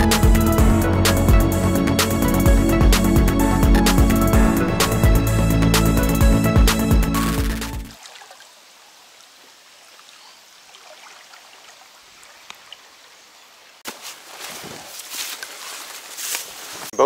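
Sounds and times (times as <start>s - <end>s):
background music: 0.0s - 8.0s
river water trickling and lapping: 7.9s - 16.8s
rustling noise: 13.8s - 17.0s.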